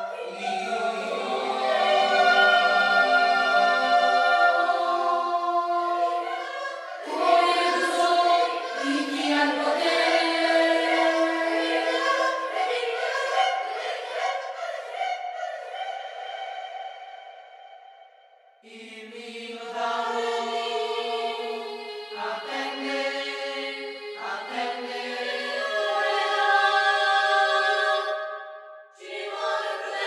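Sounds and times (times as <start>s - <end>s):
children's choir singing: 0.0s - 18.0s, 18.6s - 28.4s, 29.0s - 30.0s.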